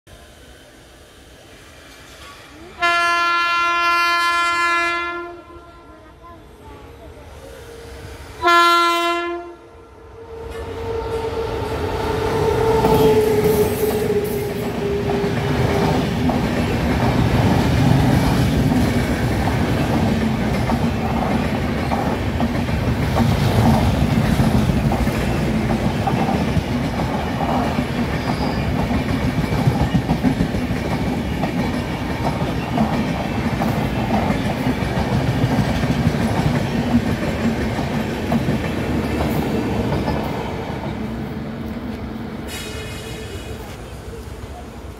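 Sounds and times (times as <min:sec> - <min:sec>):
electric locomotive passing: 0:00.1 - 0:44.9
train coaches rumbling past: 0:00.1 - 0:44.9
locomotive horn blast: 0:02.8 - 0:05.9, 0:08.4 - 0:11.6.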